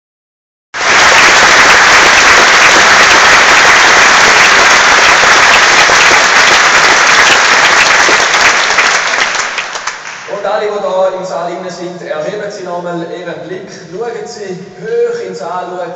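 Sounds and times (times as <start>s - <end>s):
audience applauding: 0.8s - 10.4s.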